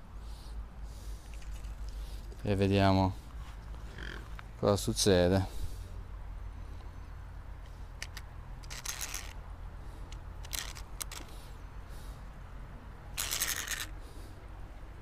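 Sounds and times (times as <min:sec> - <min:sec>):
low steady rumble: 0:00.0 - 0:15.0
fishing reel clicks: 0:08.0 - 0:09.4, 0:10.4 - 0:11.3, 0:13.2 - 0:13.9.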